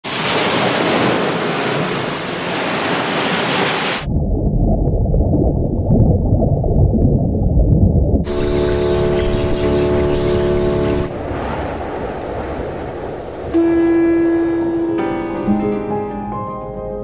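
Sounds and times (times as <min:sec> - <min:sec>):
sea surf washing over rock: 0:00.0 - 0:04.1, 0:08.2 - 0:15.2
muffled underwater wash: 0:03.9 - 0:15.8.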